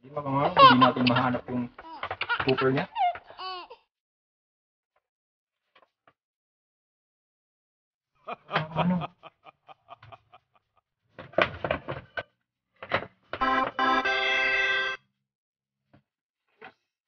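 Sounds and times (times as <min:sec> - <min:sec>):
organ-like musical tone: 0:13.4 - 0:15.0.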